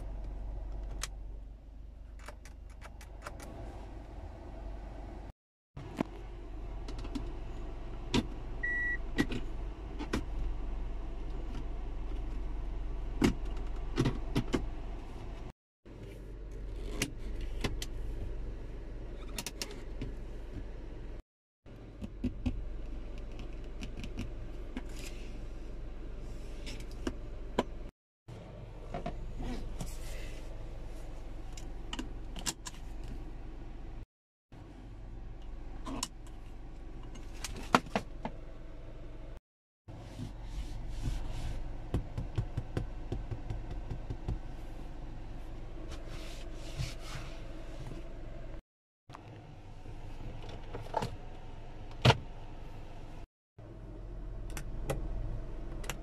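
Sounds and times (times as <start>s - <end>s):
palm sweeping across leather: 39.9s - 41.6s, 45.9s - 47.8s
hand tapping leather seat: 41.9s - 44.4s.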